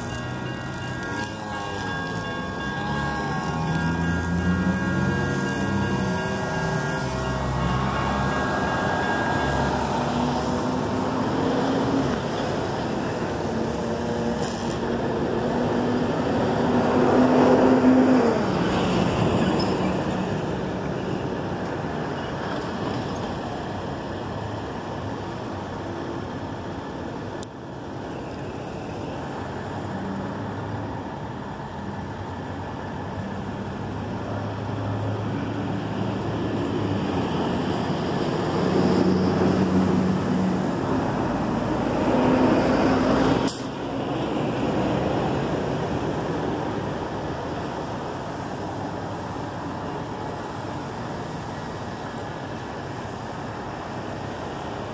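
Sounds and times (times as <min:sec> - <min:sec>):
freight train rolling on rails: 0:00.0 - 0:17.5.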